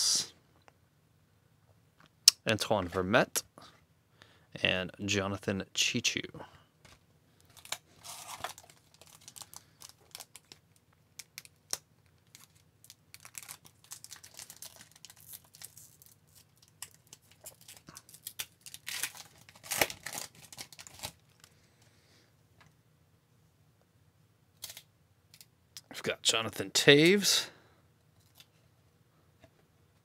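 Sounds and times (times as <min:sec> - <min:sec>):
wrapper crinkling and tearing: 0:07.5 - 0:21.5.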